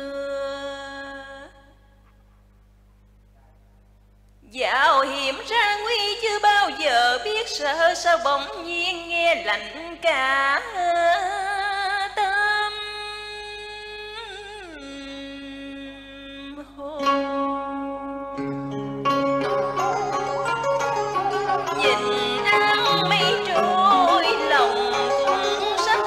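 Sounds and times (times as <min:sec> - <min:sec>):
wordless vibrato singing: 0:14.7 - 0:26.0
plucked string accompaniment: 0:17.0 - 0:26.0.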